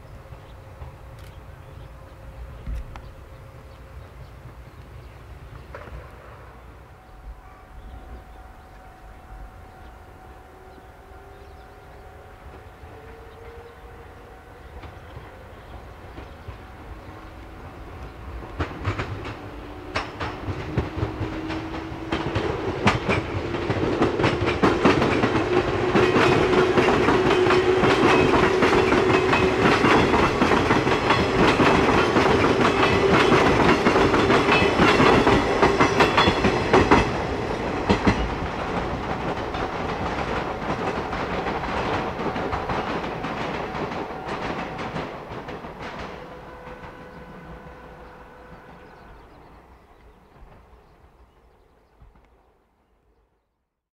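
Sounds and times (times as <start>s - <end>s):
train hum: 0.0s - 53.2s
train wheels clacking over rail joints: 14.8s - 49.4s.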